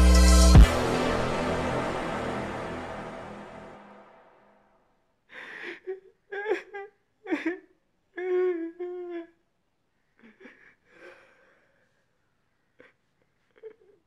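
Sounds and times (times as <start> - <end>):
man mock crying: 5.7 - 9.4.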